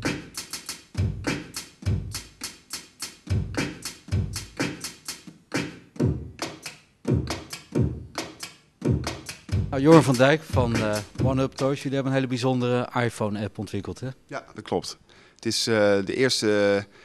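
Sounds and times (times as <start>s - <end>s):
snare and hi-hat clicks: 0.0s - 11.8s
kick drum thuds: 7.1s - 8.0s, 8.8s - 9.8s, 10.5s - 11.5s.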